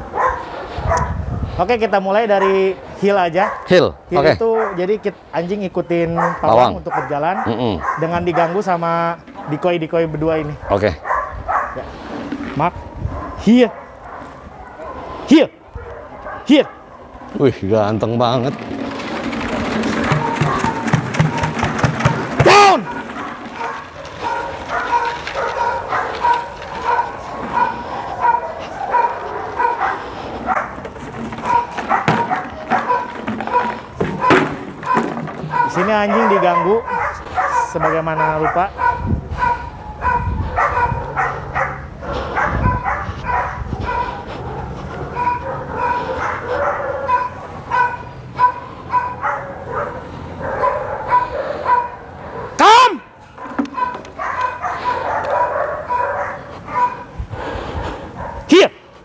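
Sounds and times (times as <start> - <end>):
dog barking: 0.0 - 1.2, 2.3 - 5.1, 6.1 - 9.8, 10.4 - 11.9, 12.6 - 17.4, 19.4 - 57.2, 57.8 - 58.7
jug of stones knocking on ground: 18.4 - 26.9, 30.8 - 35.7.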